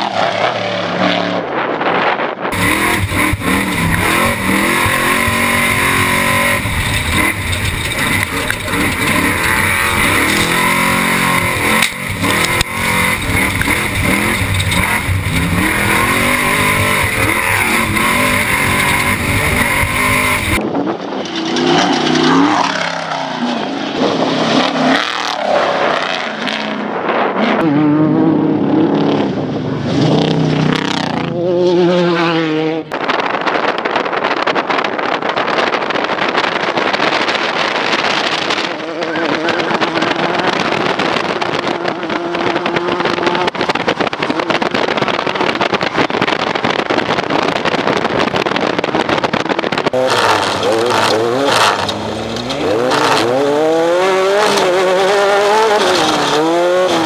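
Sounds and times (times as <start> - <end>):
truck engine revving: 0.0 - 32.9, 35.4 - 57.0
wind tyre and chassis roar: 0.0 - 57.0
race engine passing by: 50.0 - 57.0.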